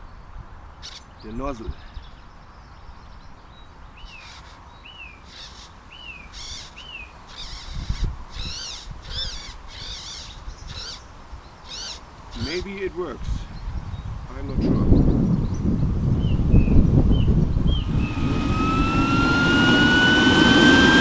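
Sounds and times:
birds chirping: 0:00.0 - 0:21.0
harsh high bird calls: 0:00.8 - 0:02.2, 0:04.0 - 0:14.2.

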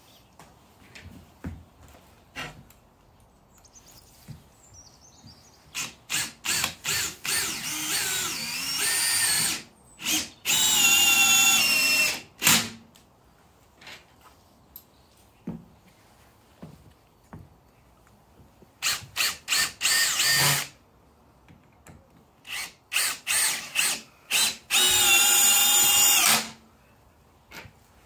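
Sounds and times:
cordless drill whining: 0:05.8 - 0:12.7, 0:18.8 - 0:20.7, 0:22.5 - 0:26.6.

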